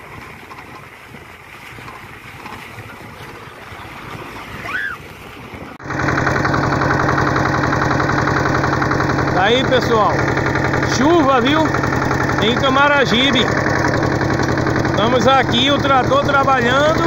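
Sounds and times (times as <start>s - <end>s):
wind and road noise on bus: 0.0s - 5.8s
tractor engine running: 0.0s - 17.0s.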